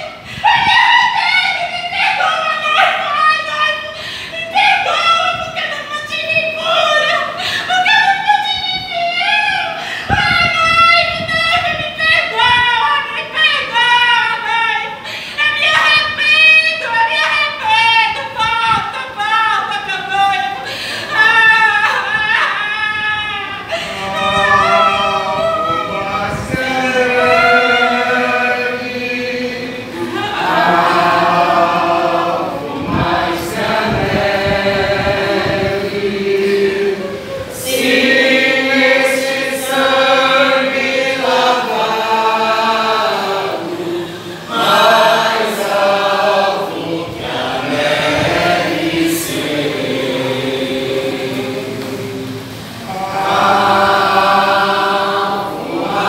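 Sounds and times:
group singing slow worship song: 12.1 - 56.0.

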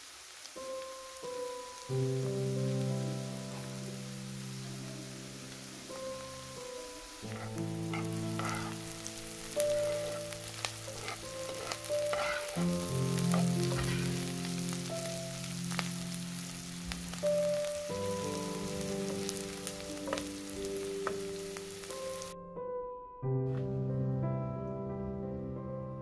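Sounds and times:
vegetables sizzling in a pan: 0.0 - 22.4
soft background music: 0.6 - 26.0
metal spoon scraping a pan: 7.2 - 14.4.

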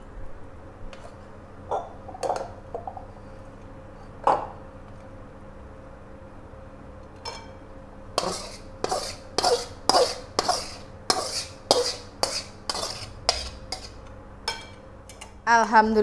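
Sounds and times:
metal spoon scraping a wok: 8.2 - 14.0.

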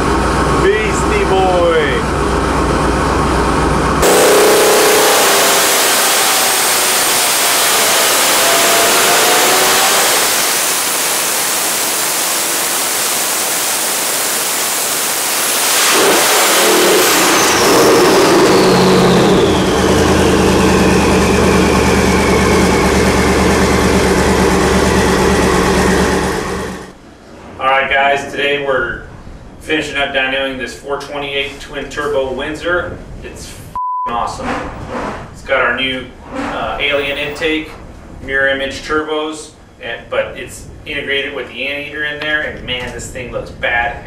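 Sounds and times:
engine full-throttle roar: 0.0 - 27.0
turbo whistle: 4.0 - 13.8, 15.2 - 26.7.

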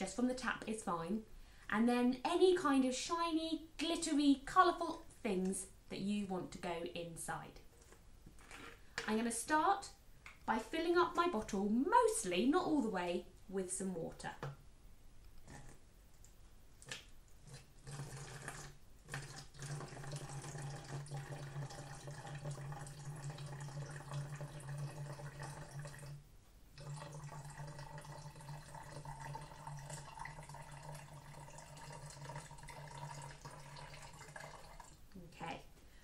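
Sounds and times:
water pouring into plastic bottle: 16.8 - 26.2, 26.8 - 35.0.

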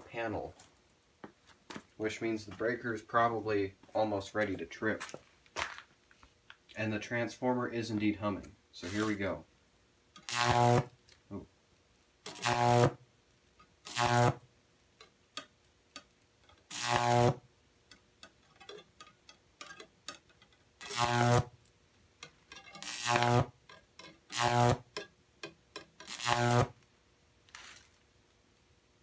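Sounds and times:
faint transformer hum: 0.0 - 29.0
electric arc buzzing: 8.8 - 9.3, 10.2 - 11.0, 12.2 - 13.0, 13.8 - 14.5, 16.7 - 17.5, 20.8 - 21.6, 22.7 - 23.6, 24.2 - 25.0, 26.0 - 26.8
small crackles: 26.0 - 28.7.

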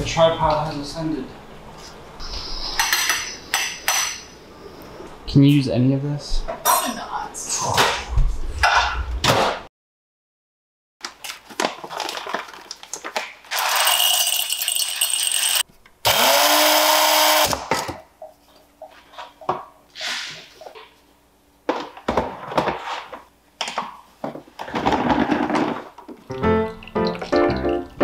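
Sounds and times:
electric coffee grinder running: 13.6 - 17.5.

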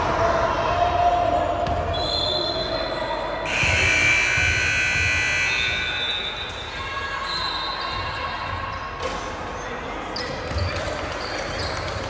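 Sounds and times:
basketball bouncing on court: 3.5 - 5.5, 10.2 - 12.0.

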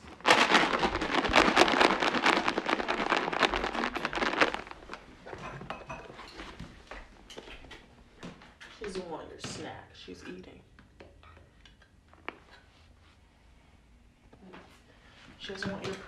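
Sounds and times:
loud close crinkling and rustling: 0.0 - 5.5.

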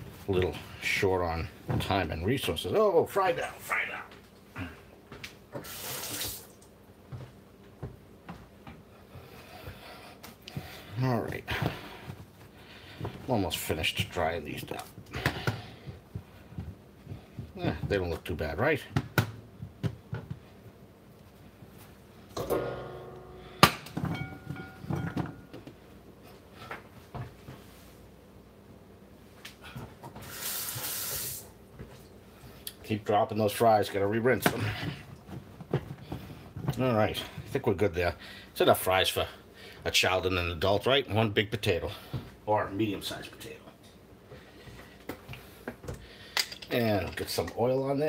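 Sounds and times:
kitchen tap running: 5.6 - 6.6
knocks ringing ceramic bowl: 22.4 - 25.6.

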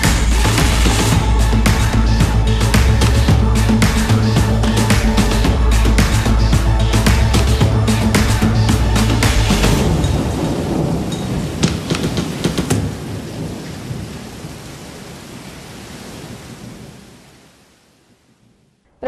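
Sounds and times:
low thunder rumble: 0.0 - 15.4
rain hiss: 0.0 - 18.2
sharp thunder cracks: 9.3 - 14.6.

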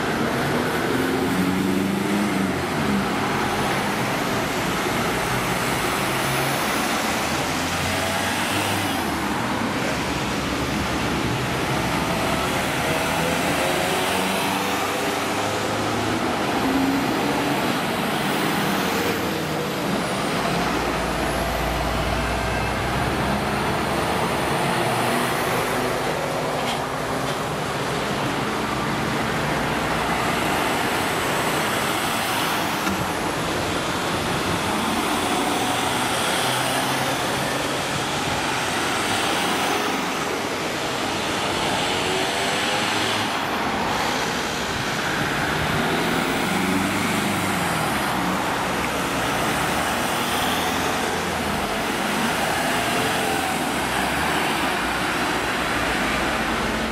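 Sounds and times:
vehicles driving past: 0.0 - 56.9.

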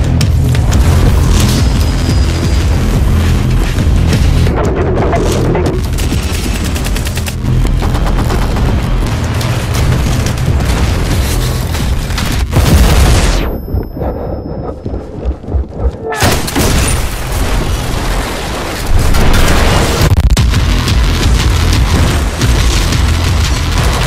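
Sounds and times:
music with booming bass: 0.0 - 14.1, 19.5 - 24.0.

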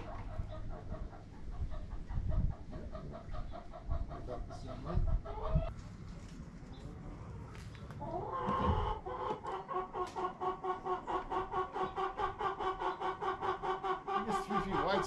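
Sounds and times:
chicken clucking: 0.0 - 5.7, 6.7 - 15.0.

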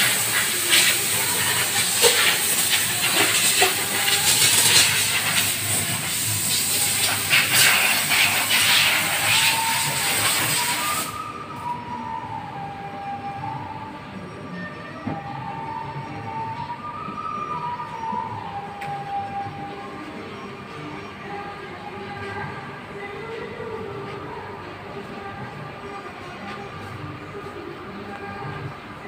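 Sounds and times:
loud steady hiss: 0.0 - 11.3
background noise: 0.0 - 29.0.

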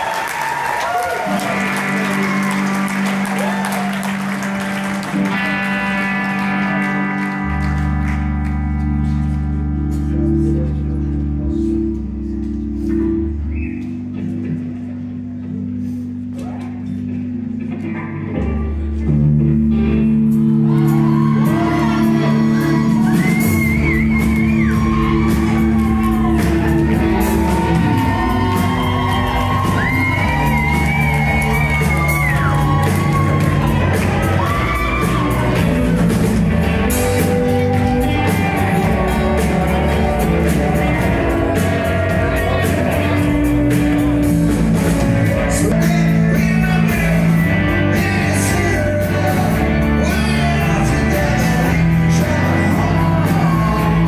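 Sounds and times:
live rock band playing: 0.0 - 54.0
lead singer singing: 20.6 - 43.5, 45.5 - 54.0.

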